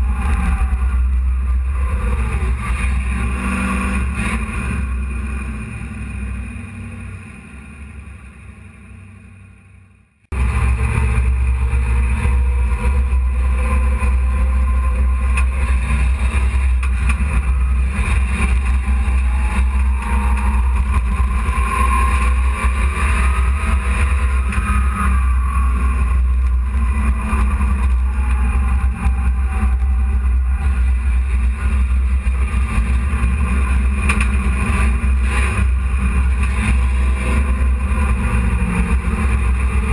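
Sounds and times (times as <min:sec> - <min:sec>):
truck engine running: 0:00.0 - 0:39.9.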